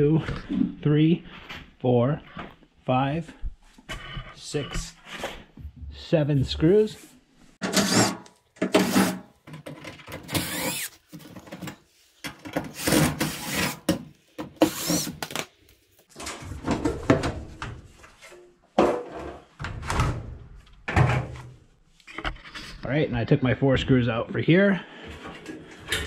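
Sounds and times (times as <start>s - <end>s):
cordless drill motor whine: 10.3s - 11.0s.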